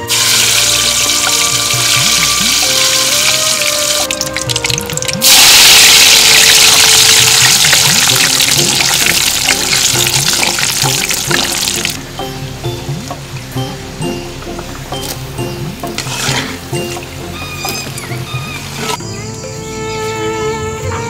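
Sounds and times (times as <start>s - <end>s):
food sizzling in hot oil: 0.0s - 13.2s, 14.4s - 18.0s.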